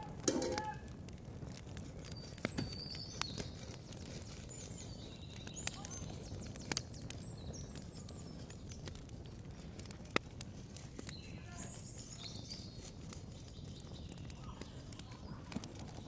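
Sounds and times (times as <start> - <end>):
clicks and taps on wire grill: 0.2 - 0.8
metal spoon against grate: 0.2 - 0.8.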